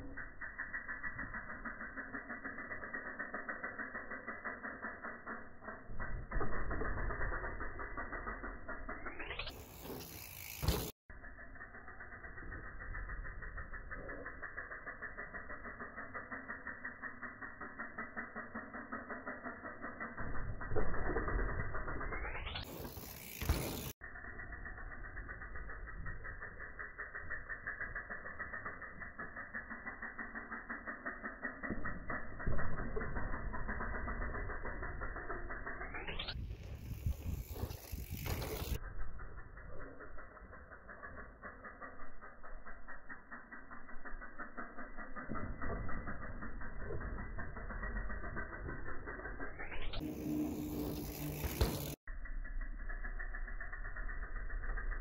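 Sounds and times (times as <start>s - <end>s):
bike freehub ticking: 0.0s - 55.0s.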